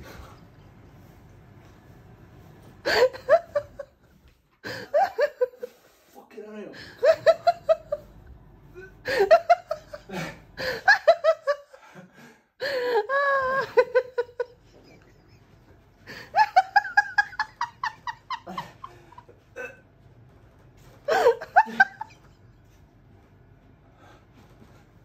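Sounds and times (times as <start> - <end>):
person laughing hard: 2.9 - 3.9, 12.6 - 19.3, 21.1 - 22.4.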